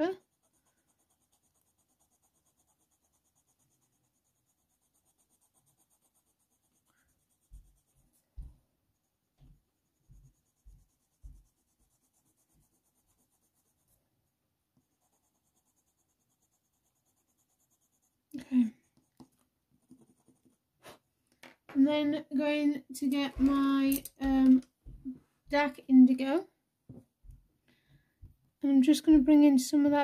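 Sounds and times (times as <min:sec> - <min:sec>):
faint pencil strokes on paper: 0:00.0 - 0:21.1.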